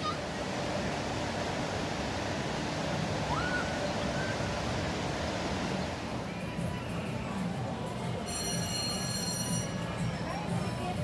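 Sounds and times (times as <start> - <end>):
river water rushing: 0.0 - 6.7.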